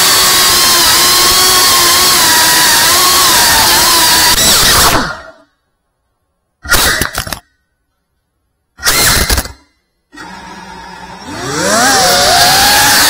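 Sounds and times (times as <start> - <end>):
drone motors whining: 0.0 - 5.5, 10.1 - 13.0.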